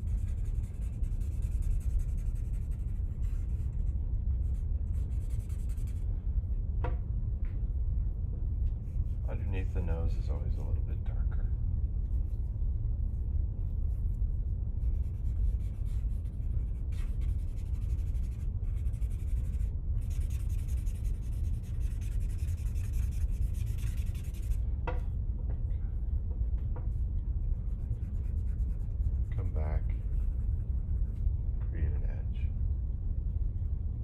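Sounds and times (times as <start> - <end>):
charcoal scratching on paper: 0.0 - 6.0, 14.8 - 24.6, 27.4 - 31.2
steady low hum: 0.0 - 34.0.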